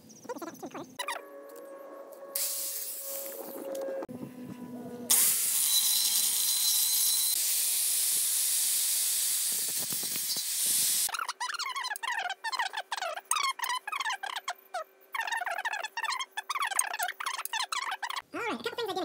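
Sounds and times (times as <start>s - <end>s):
angle grinder cutting steel: 5.1s - 11.1s.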